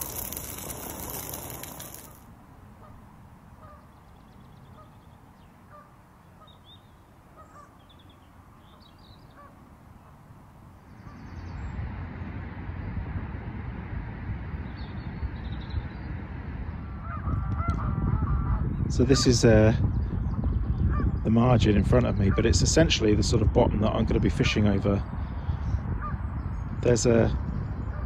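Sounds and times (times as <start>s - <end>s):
bird calls: 3.6s - 11.6s.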